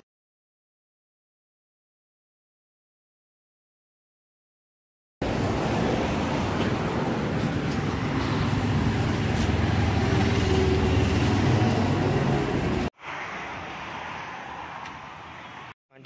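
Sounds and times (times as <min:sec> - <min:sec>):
vehicle engine roaring: 0:05.2 - 0:15.6
traffic hum: 0:05.2 - 0:15.8.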